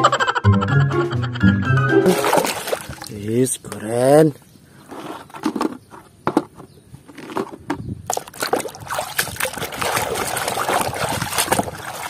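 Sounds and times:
water sloshing and splashing: 0:02.0 - 0:03.3, 0:07.2 - 0:12.0.

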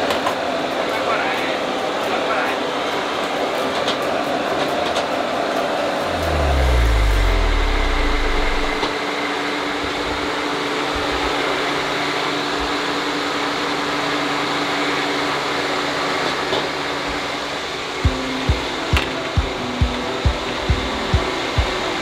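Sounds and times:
faint steady hum: 0:06.1 - 0:08.9.

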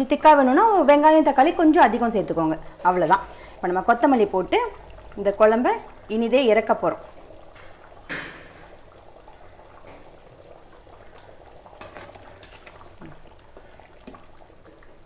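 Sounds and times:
curry bubbling: 0:00.0 - 0:15.0.

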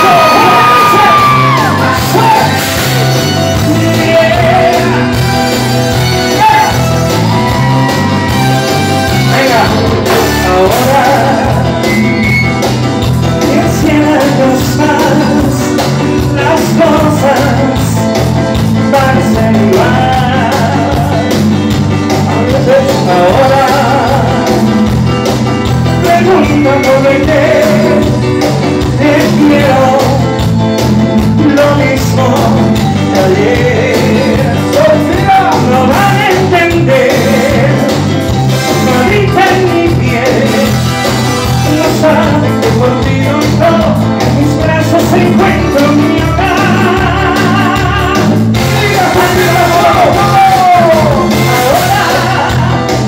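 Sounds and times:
lead singing: 0:00.0 - 0:12.7, 0:41.6 - 0:53.0
live band playing latin music: 0:00.0 - 0:53.0.

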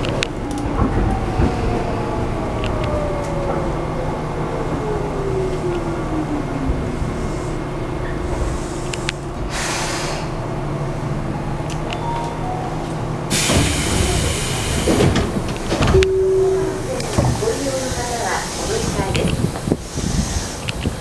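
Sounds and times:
train low rumble: 0:00.0 - 0:21.0
air hiss: 0:08.4 - 0:10.4, 0:13.3 - 0:15.0, 0:17.6 - 0:20.9.

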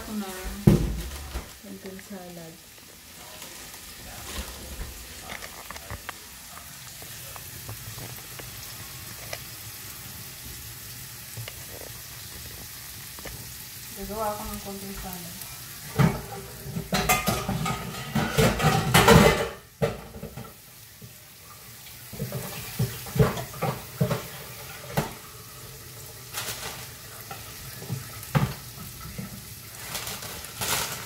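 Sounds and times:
dishes clinking and knocking: 0:15.9 - 0:20.6, 0:22.1 - 0:25.2, 0:27.3 - 0:29.4.

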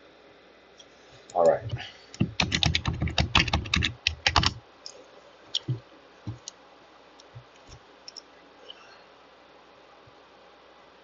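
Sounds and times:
computer keyboard typing: 0:01.4 - 0:04.6, 0:05.5 - 0:06.5.

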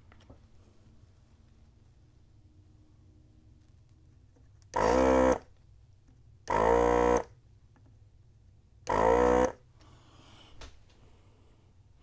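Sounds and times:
loud buzzer tones: 0:04.7 - 0:05.5, 0:06.5 - 0:07.4, 0:08.9 - 0:09.6.

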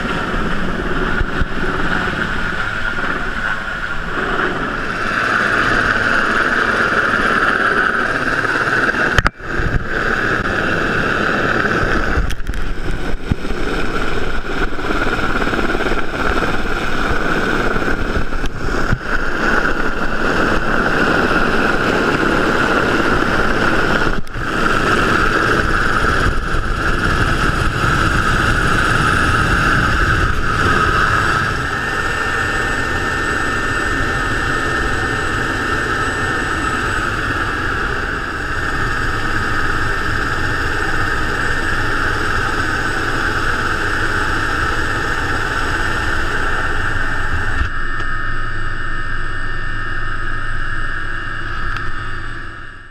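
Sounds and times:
helicopter hovering: 0:00.0 - 0:52.9
high turbine whine: 0:00.0 - 0:52.9.

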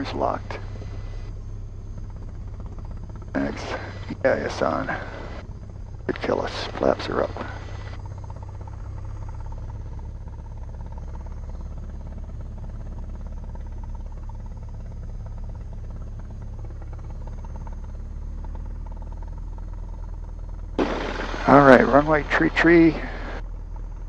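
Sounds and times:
light aircraft engine droning: 0:00.0 - 0:24.0.

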